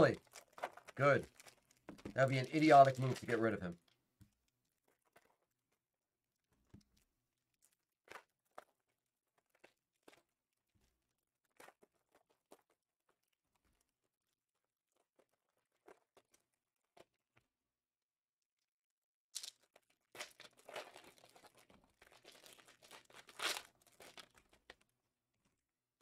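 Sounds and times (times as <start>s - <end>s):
packaging crinkling: 0.0s - 4.0s, 19.4s - 24.9s.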